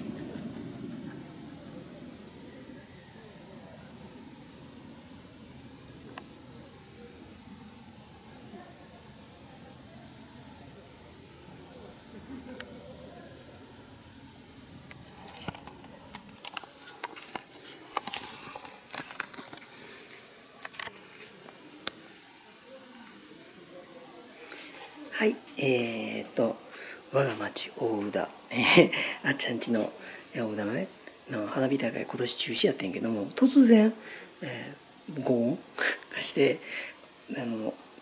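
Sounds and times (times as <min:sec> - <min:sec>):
insects chirping in a trill: 0:00.0 - 0:38.0.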